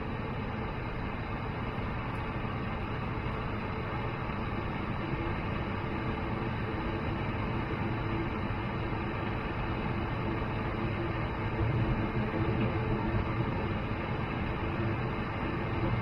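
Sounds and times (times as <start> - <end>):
faint steady whine: 0.0 - 16.0
jet engine cabin rumble: 0.0 - 16.0.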